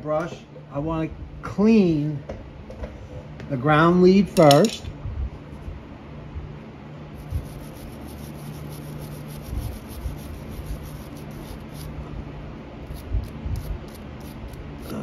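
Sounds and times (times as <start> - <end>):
wire brush scrubbing metal: 7.2 - 11.9, 12.9 - 15.0.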